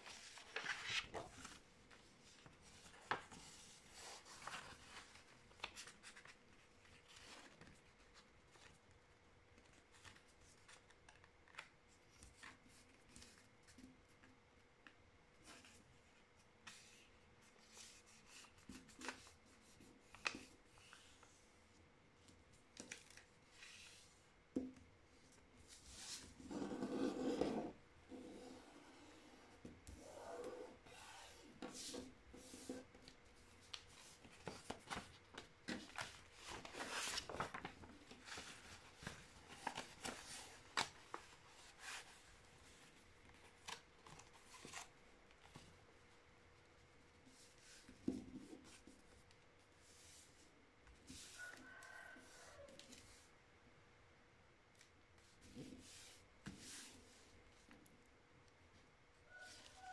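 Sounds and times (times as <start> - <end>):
sheet of paper rustling: 0.0 - 8.8, 31.6 - 44.9
paper rustling as it is folded: 0.0 - 21.4, 29.8 - 46.1.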